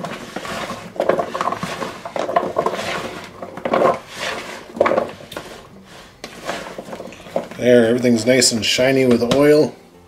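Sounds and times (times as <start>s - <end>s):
vegetables tossed in plastic bowl: 0.0s - 8.0s.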